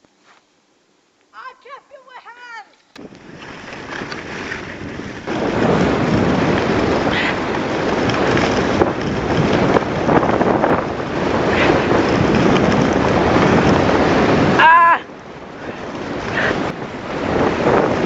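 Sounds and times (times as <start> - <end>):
skis scraping on snow: 3.0 - 14.6, 15.4 - 18.0
wind rushing over microphone: 3.0 - 18.0.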